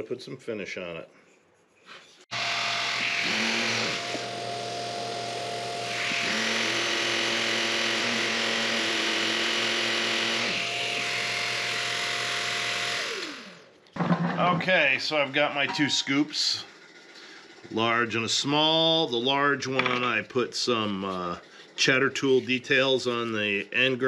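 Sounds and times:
electric sander motor: 0:02.3 - 0:13.7
wood lathe motor whine: 0:02.3 - 0:13.7.

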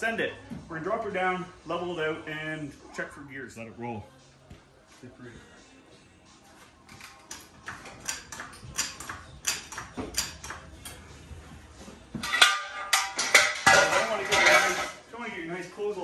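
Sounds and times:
metal clanking and rattling: 0:12.2 - 0:15.0.

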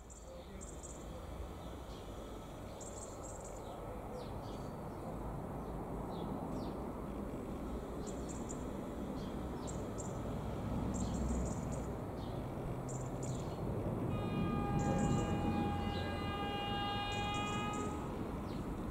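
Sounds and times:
small birds chirping: 0:00.0 - 0:06.8, 0:08.0 - 0:13.7
diesel train rumble: 0:00.0 - 0:18.9.

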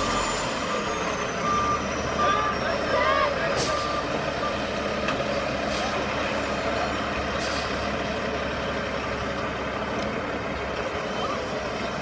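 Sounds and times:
truck diesel engine running: 0:00.0 - 0:12.0
air brakes hissing: 0:03.5 - 0:04.1, 0:07.4 - 0:07.9.

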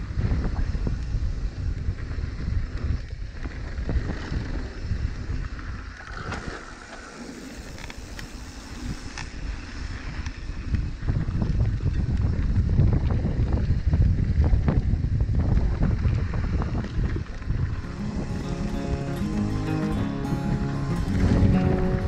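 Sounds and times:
wind on microphone: 0:00.0 - 0:22.0.

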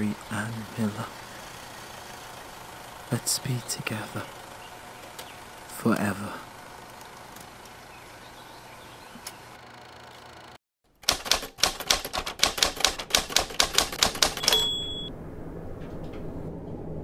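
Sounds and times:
typewriter keys clacking: 0:11.0 - 0:14.9
typewriter bell ding: 0:14.3 - 0:15.1.

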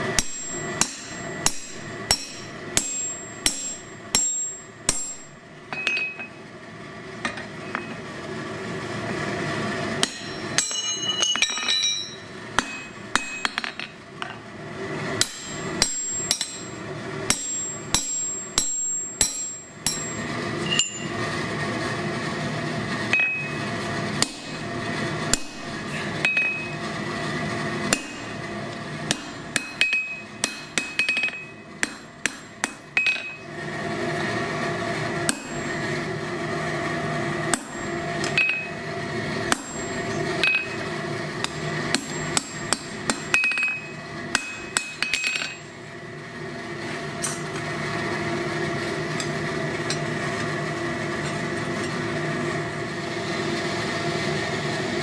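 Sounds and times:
hammer striking hot steel on anvil: 0:00.0 - 0:06.4, 0:10.0 - 0:14.4, 0:15.2 - 0:21.2, 0:23.1 - 0:23.6, 0:24.2 - 0:26.8, 0:27.9 - 0:33.5, 0:35.2 - 0:35.8, 0:37.5 - 0:38.8, 0:39.5 - 0:45.7, 0:47.2 - 0:47.7
steady hum: 0:00.0 - 0:55.0.

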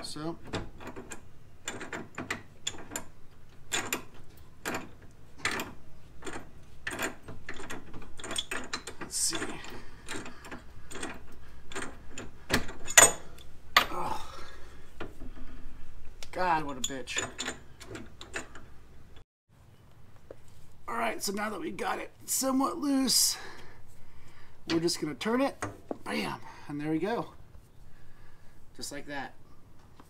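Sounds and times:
pipe wrench clicking and scraping: 0:00.5 - 0:14.0, 0:14.8 - 0:18.8.

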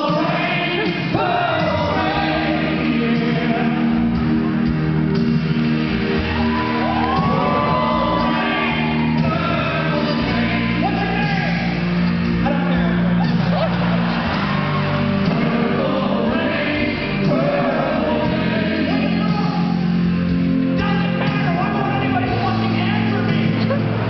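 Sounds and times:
man singing into microphone: 0:00.0 - 0:04.1, 0:08.2 - 0:11.6, 0:15.3 - 0:19.9
sustained backing chords: 0:00.0 - 0:24.0.

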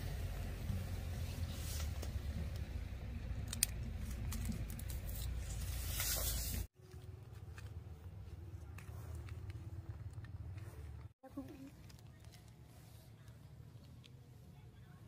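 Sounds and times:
soil and roots crackling: 0:00.0 - 0:14.3.

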